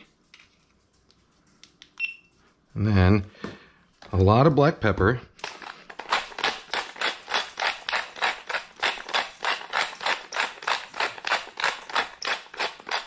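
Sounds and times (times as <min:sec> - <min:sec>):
pepper mill grinding: 0:05.4 - 0:13.0.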